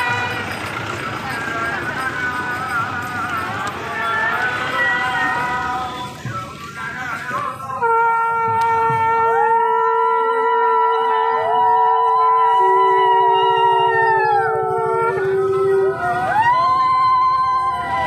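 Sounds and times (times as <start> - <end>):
conch shells blown in long notes: 7.7 - 18.0.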